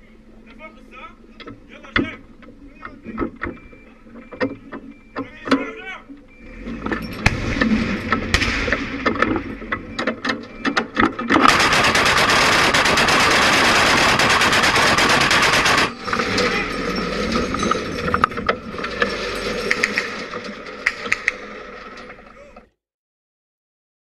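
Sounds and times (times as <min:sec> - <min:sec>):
autocannon gunfire: 0:07.2 - 0:09.7, 0:11.3 - 0:16.1.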